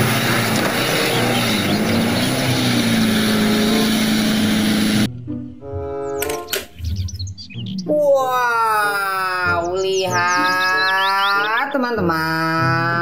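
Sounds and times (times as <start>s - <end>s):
truck engine labouring: 0.0s - 5.1s.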